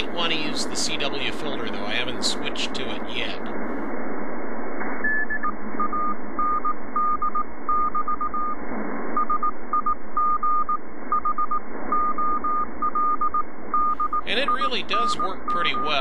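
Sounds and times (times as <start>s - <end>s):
radio band hiss: 0.0s - 3.9s, 14.2s - 16.0s
morse code tone: 5.1s - 8.6s, 9.2s - 16.0s.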